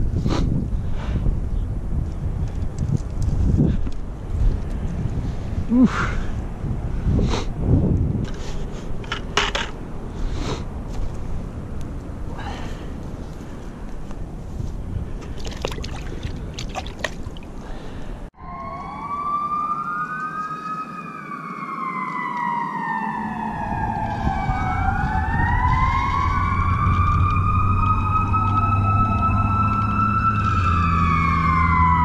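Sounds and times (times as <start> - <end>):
rustling in dry grass: 10.1 - 15.4
emergency vehicle sirens wailing: 18.4 - 32.0.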